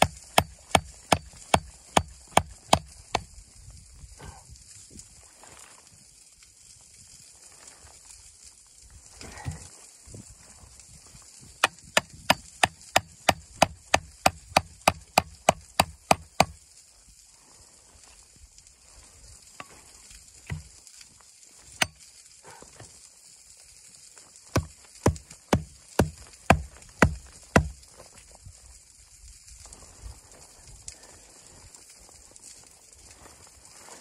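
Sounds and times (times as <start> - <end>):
hatchet chopping wooden stick: 0.0 - 3.3, 11.6 - 16.6, 20.5 - 20.7, 21.7 - 22.0, 24.5 - 27.8.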